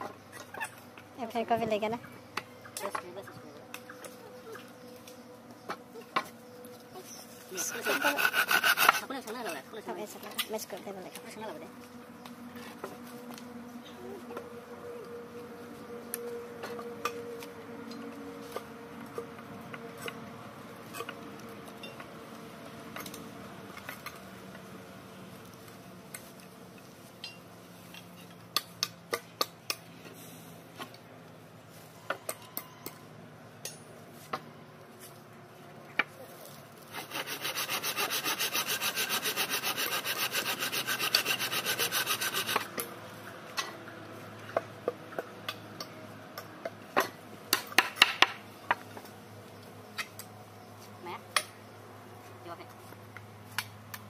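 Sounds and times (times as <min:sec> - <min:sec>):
handsaw cutting wood: 0:07.5 - 0:09.5, 0:36.9 - 0:42.7.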